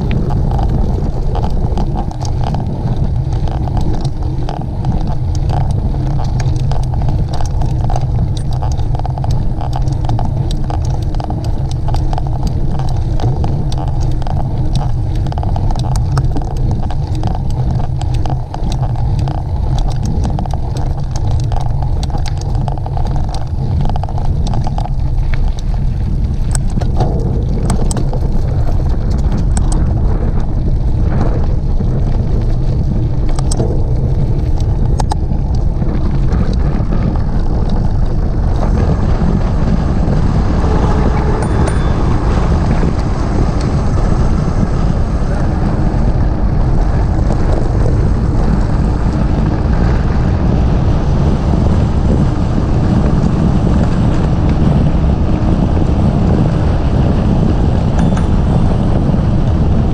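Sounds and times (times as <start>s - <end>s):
clicks and rattles: 0.0s - 43.7s
wind buffeting microphone: 0.0s - 59.9s.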